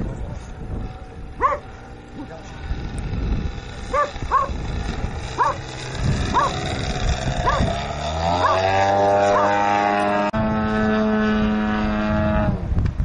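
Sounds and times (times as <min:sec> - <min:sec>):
model plane engine rising in pitch: 0:00.0 - 0:13.0
dog barking: 0:01.4 - 0:01.6, 0:03.9 - 0:04.5, 0:05.4 - 0:05.6, 0:06.3 - 0:06.6, 0:07.4 - 0:07.6.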